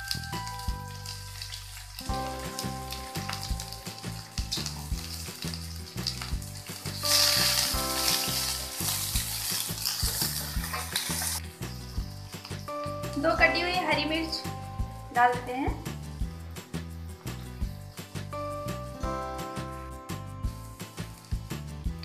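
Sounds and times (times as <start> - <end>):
background music: 0.0 - 22.0
onion sizzling in hot oil: 0.0 - 22.0
wooden spatula stirring onions: 1.5 - 12.7.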